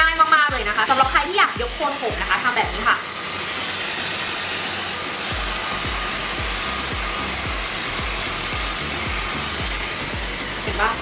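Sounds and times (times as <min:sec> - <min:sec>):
hair styler blowing air: 0:00.0 - 0:11.0
background music with beat: 0:05.3 - 0:11.0.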